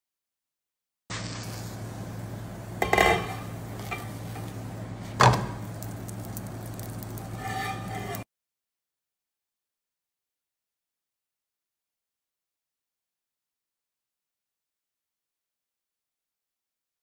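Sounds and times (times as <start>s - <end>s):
steady low hum: 1.1s - 8.2s
spatula scraping frying pan: 2.8s - 4.6s, 6.3s - 8.3s.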